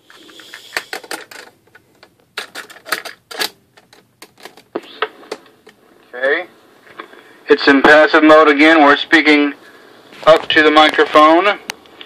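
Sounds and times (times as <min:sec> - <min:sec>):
cassette going into deck: 0:00.6 - 0:05.8.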